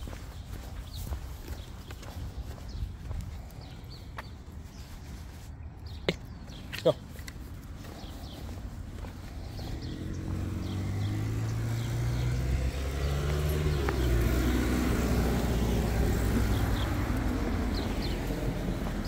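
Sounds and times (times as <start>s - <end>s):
vehicle driving past: 9.2s - 19.0s.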